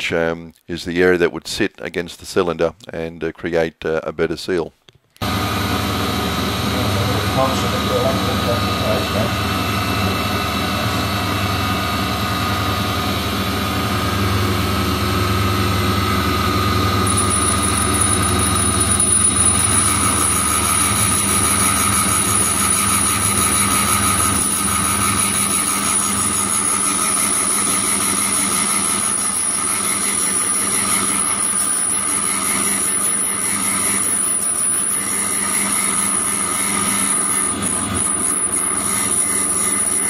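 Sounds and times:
machine motor humming: 5.2s - 31.2s
high thin grinding whine: 5.2s - 40.0s.

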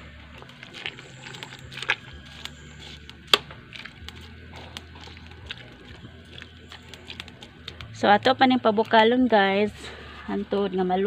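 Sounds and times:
metal ladle stirring in pot: 0.0s - 7.8s.

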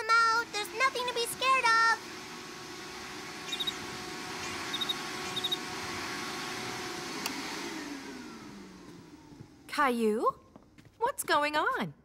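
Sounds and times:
vacuum cleaner running: 0.0s - 10.9s
vacuum switch click: 7.2s - 7.4s.

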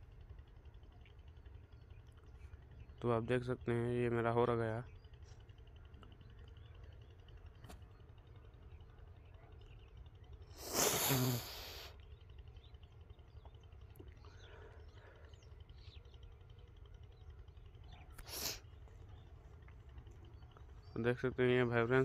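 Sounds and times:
low steady hum: 0.0s - 22.0s
breath puffs on microphone: 10.6s - 11.9s, 18.2s - 18.6s.

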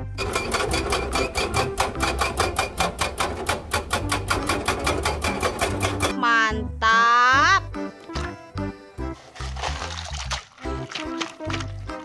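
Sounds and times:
hydraulic rock breaker hammering: 0.0s - 6.1s.

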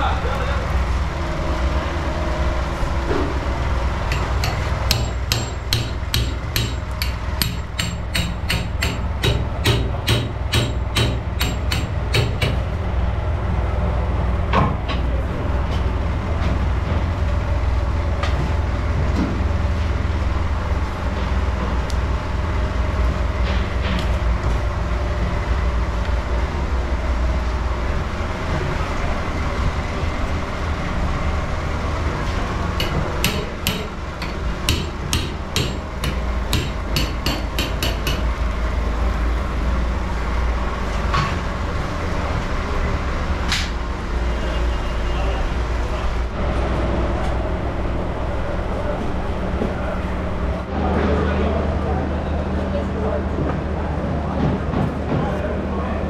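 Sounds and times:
steady low rumble: 0.0s - 44.2s
heavy blade chopping meat: 32.8s - 38.2s.

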